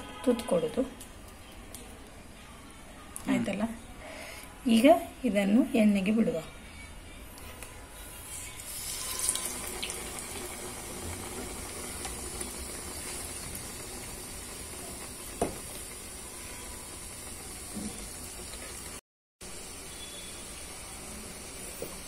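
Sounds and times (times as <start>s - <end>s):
batter sizzling in hot oil: 8.5s - 22.0s.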